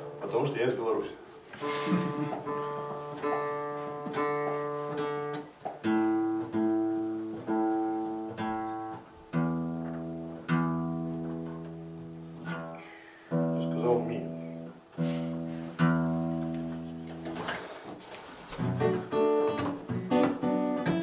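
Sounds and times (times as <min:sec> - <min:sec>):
acoustic guitar strumming chords: 0:00.0 - 0:00.7, 0:01.6 - 0:21.0.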